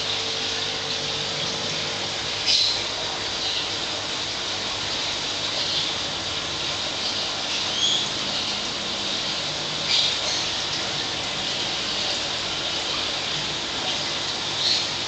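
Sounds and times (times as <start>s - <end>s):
aquarium filter water rushing: 0.0s - 15.0s.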